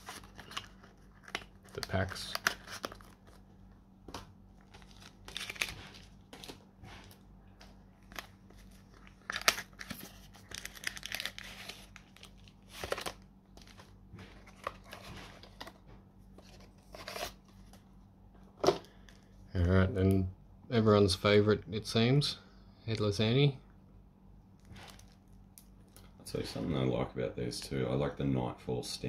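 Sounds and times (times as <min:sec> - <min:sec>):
foil packs crinkling: 0:00.0 - 0:03.5, 0:04.6 - 0:07.2, 0:08.0 - 0:15.0.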